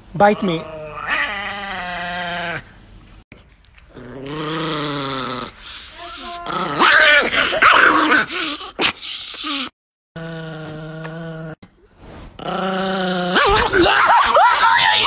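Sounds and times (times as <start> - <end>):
small dog growling: 0.4 - 2.8, 3.9 - 11.7, 12.4 - 13.8.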